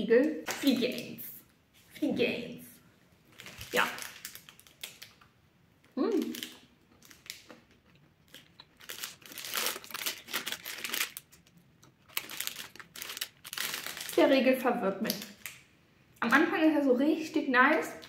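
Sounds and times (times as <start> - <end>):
plastic wrapper crinkling: 3.2 - 15.7.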